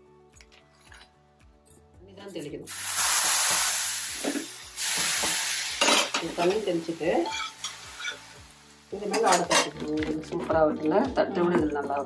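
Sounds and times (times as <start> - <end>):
flatbread sizzling on a griddle: 2.7 - 9.0.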